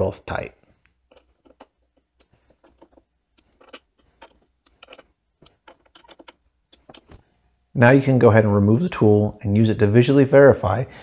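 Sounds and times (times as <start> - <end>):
screwdriver clicking on screws: 1.0 - 7.2.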